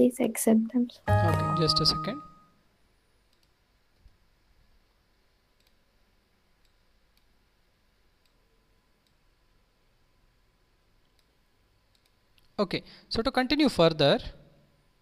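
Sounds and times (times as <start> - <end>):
faint computer mouse clicks: 3.3 - 4.2, 5.6 - 5.8, 6.6 - 7.3, 11.0 - 12.5.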